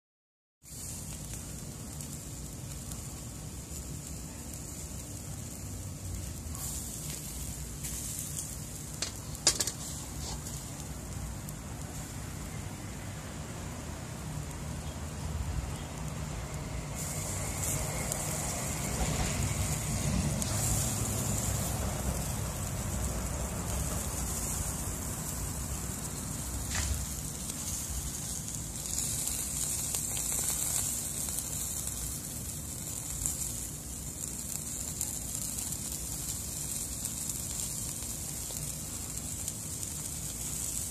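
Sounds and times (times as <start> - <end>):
fish sizzling on grill: 0.6 - 40.9
juices crackling on coals: 0.6 - 40.9
metal grill basket clicks: 9.0 - 9.8.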